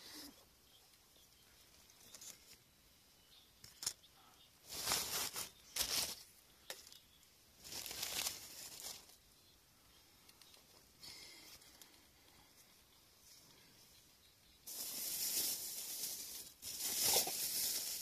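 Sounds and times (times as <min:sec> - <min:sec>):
crinkly packaging rustling: 0:01.8 - 0:02.6, 0:04.6 - 0:07.0, 0:07.6 - 0:09.2, 0:14.7 - 0:18.0.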